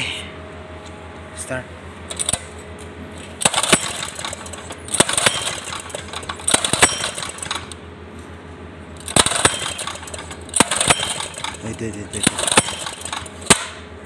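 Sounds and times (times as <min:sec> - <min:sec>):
steady low hum: 0:00.0 - 0:14.0
metal parts clicking and clattering: 0:03.2 - 0:07.8, 0:09.0 - 0:13.6.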